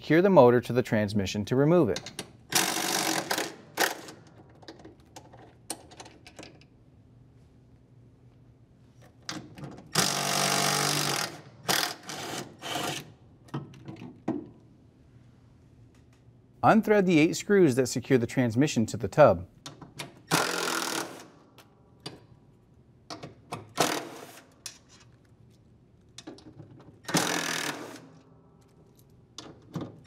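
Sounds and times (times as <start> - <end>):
cordless drill running: 27.1 - 28.1.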